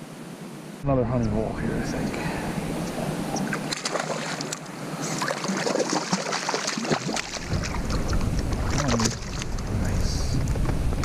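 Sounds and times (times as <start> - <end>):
water splashing beside boat: 2.7 - 11.0
wind rumble: 6.9 - 11.0.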